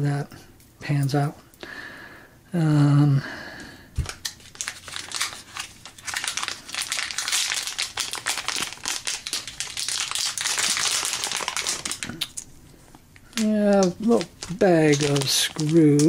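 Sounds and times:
plastic bag crinkling: 0:04.0 - 0:16.0.

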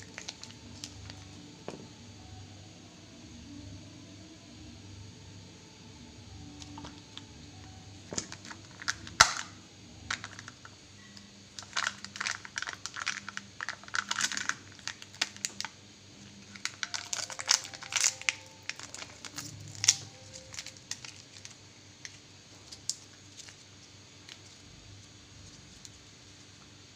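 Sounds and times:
foil seal crinkling and tearing: 0:00.0 - 0:01.2, 0:08.1 - 0:09.5, 0:11.6 - 0:24.6.

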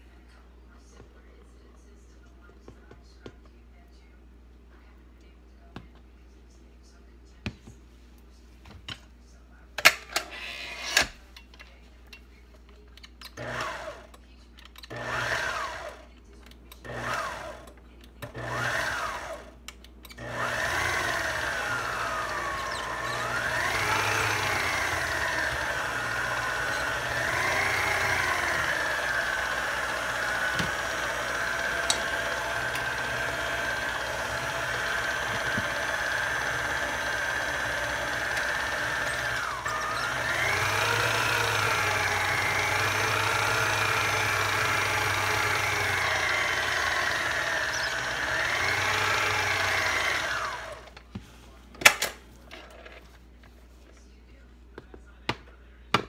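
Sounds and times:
electric mixer whining: 0:13.4 - 0:14.0, 0:14.9 - 0:16.0, 0:16.9 - 0:17.6, 0:18.3 - 0:19.5, 0:20.2 - 0:51.0.

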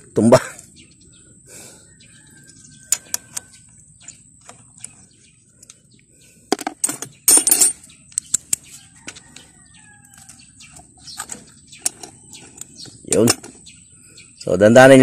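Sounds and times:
bolts and wrench clattering: 0:02.9 - 0:05.8, 0:06.5 - 0:09.5, 0:10.1 - 0:13.7.

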